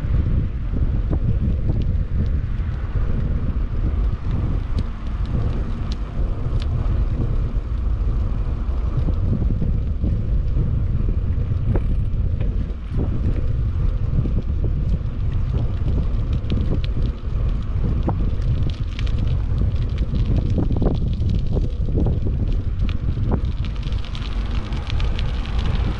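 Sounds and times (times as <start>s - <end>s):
wind buffeting microphone: 0.0s - 25.9s
light ticks and rattles: 11.5s - 25.9s.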